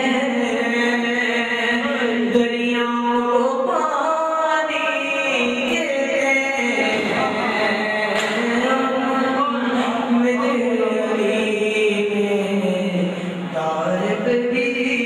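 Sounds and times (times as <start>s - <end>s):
man chanting devotional poem: 0.0s - 15.0s.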